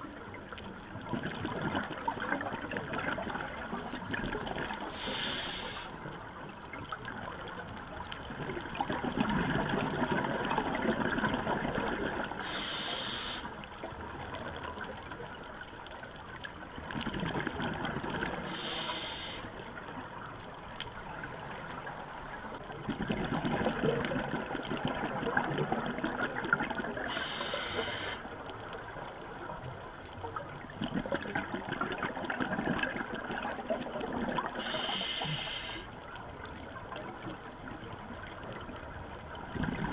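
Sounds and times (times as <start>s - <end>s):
exhaled bubbles burbling: 0.9s - 5.0s, 8.3s - 12.4s, 16.8s - 18.5s, 22.8s - 27.3s, 30.6s - 34.7s, 39.3s - 39.9s
regulator inhale hiss: 4.8s - 6.1s, 12.4s - 13.6s, 18.4s - 19.6s, 27.0s - 28.3s, 34.5s - 36.0s.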